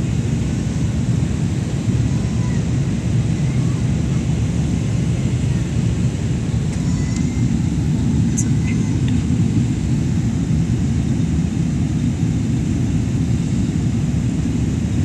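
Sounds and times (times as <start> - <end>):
airliner cabin drone: 0.0 - 15.0.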